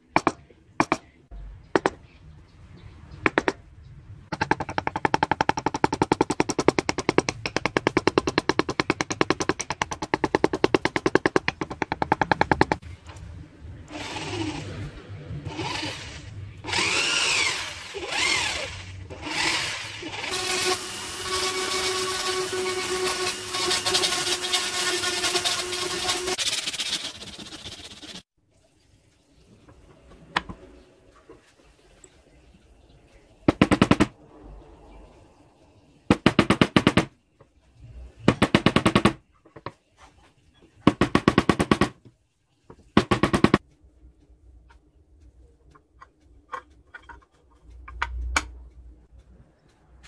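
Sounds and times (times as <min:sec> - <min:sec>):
power tool motor: 0:13.9 - 0:14.8, 0:15.5 - 0:26.4.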